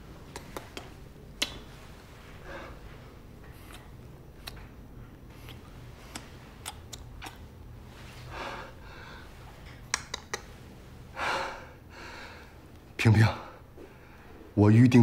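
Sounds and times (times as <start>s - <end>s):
low steady hum: 0.0s - 15.0s
sharp clicks and taps: 9.8s - 10.5s.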